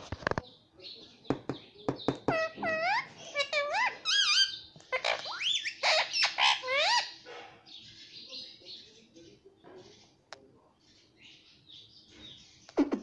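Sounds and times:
parakeet chatter: 0:00.0 - 0:10.2
parakeet whistled calls: 0:02.2 - 0:07.2.

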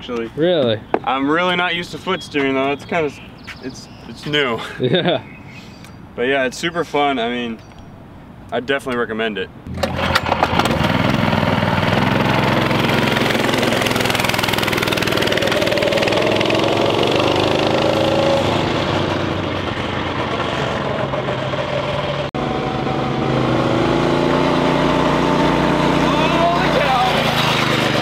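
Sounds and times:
go-kart engine revving: 0:09.7 - 0:28.0.

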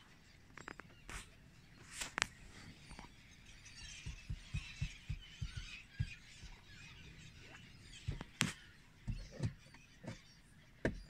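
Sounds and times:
gulls calling: 0:00.0 - 0:11.0
low thumps: 0:04.0 - 0:06.6.

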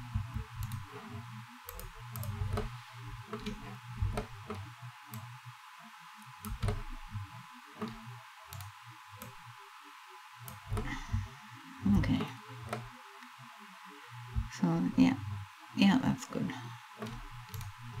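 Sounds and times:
soft low thumps: 0:00.0 - 0:00.8, 0:02.2 - 0:04.7, 0:06.4 - 0:07.3, 0:10.6 - 0:12.8, 0:14.3 - 0:15.5
mouse buttons clicking: 0:06.4 - 0:06.9.

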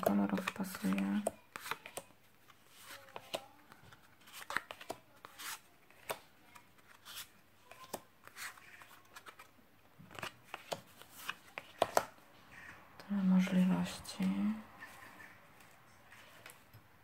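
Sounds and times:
paper rustling: 0:00.0 - 0:12.8, 0:14.8 - 0:16.7.

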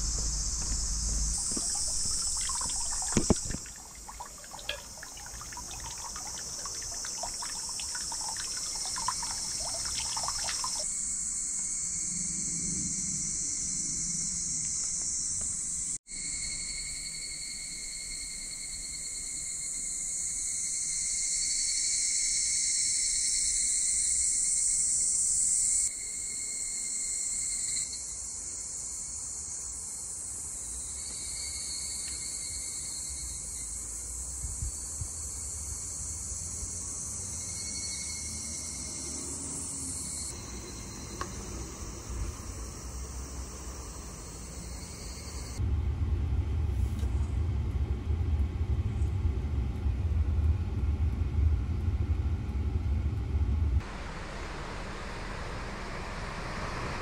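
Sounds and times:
insects shrilling: 0:00.0 - 0:24.0.

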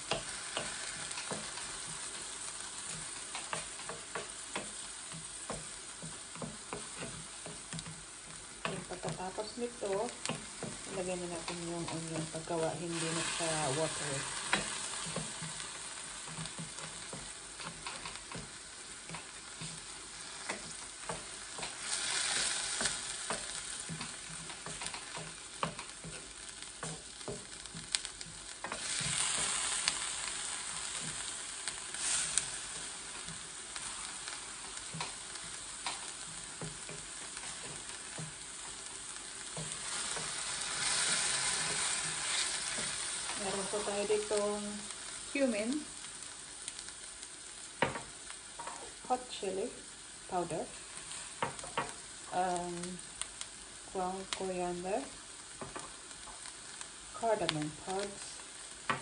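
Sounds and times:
paste sizzling in a pan: 0:00.0 - 0:59.0
wooden spoon scraping a pan: 0:00.1 - 0:45.7.

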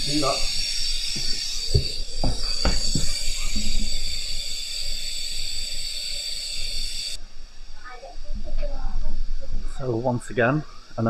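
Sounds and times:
steam hissing: 0:00.0 - 0:07.2.

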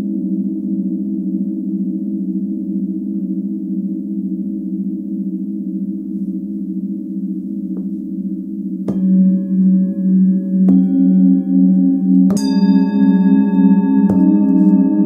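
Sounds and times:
singing bowl struck: 0:07.8 - 0:15.0
singing bowls ringing: 0:08.2 - 0:15.0.

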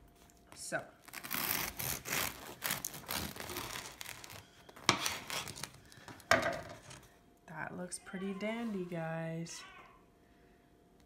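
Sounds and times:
knife sawing through bread crust: 0:01.2 - 0:04.1.

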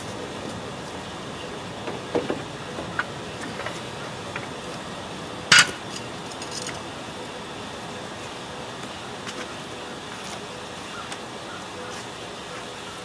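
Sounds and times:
loud metallic clank: 0:05.5 - 0:05.9
light metal clinks and knocks: 0:05.5 - 0:06.8.

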